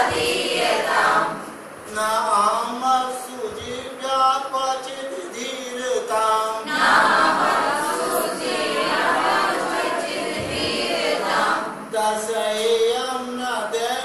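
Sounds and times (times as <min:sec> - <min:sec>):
group singing in unison: 0:00.0 - 0:01.6, 0:06.6 - 0:11.9.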